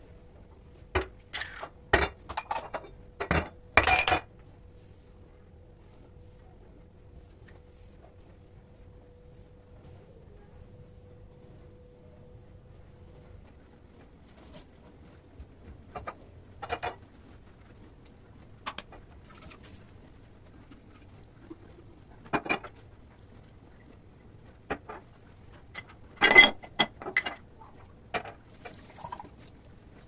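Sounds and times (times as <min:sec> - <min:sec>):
glass jars clinking and knocking: 0:01.0 - 0:04.3, 0:25.8 - 0:27.4.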